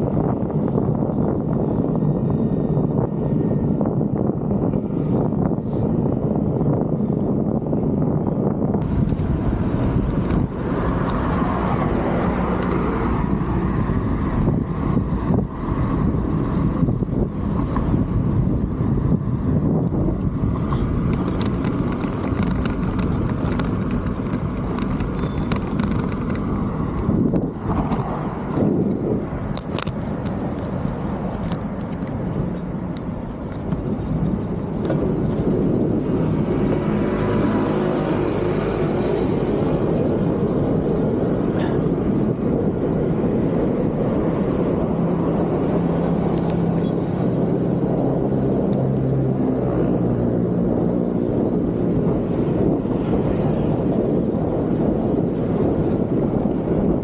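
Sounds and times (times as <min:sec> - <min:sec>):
wind and road noise: 0:00.0 - 0:57.0
cars passing: 0:08.7 - 0:57.0.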